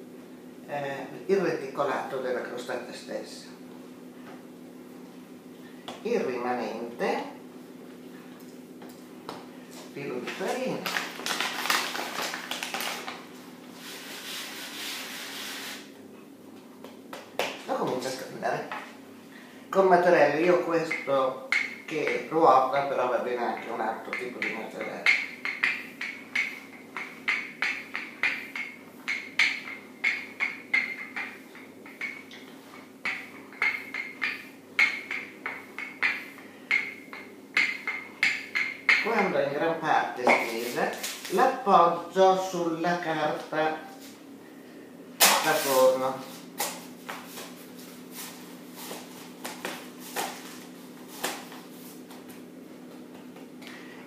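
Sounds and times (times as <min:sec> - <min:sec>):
steady low hum: 0:00.0 - 0:54.0
rolling pin knocking on wooden board: 0:23.6 - 0:32.3.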